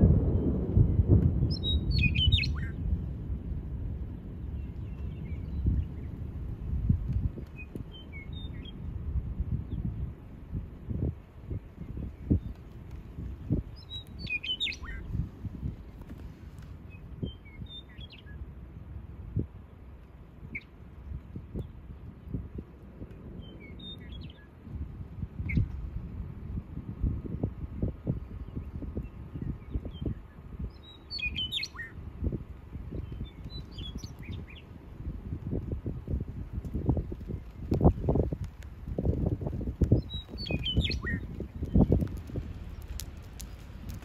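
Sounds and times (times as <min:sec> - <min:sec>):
wind rumble on microphone: 0:00.0 - 0:44.0
bird chirping: 0:01.4 - 0:02.8, 0:13.4 - 0:15.1, 0:28.4 - 0:32.0, 0:32.9 - 0:34.7, 0:39.9 - 0:43.6
small birds chirping: 0:01.4 - 0:02.8, 0:04.4 - 0:06.3, 0:07.2 - 0:08.9, 0:11.6 - 0:18.5, 0:23.2 - 0:24.6, 0:28.0 - 0:34.8, 0:36.5 - 0:44.0.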